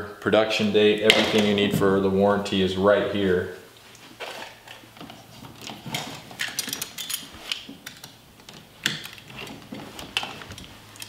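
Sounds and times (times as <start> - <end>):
hands handling wires and tools: 3.8 - 11.0.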